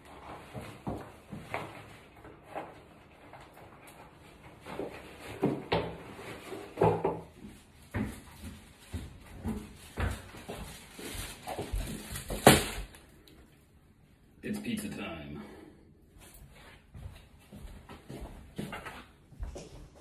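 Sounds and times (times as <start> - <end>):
plastic carrier bag rustling: 4.2 - 13.2
footsteps: 4.4 - 12.9, 16.1 - 20.0.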